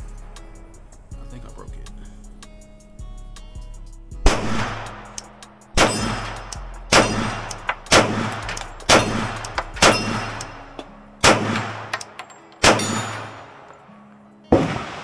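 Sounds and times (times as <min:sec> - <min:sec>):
pistol shots with echo: 0:04.2 - 0:05.2, 0:05.8 - 0:13.8, 0:14.5 - 0:15.0.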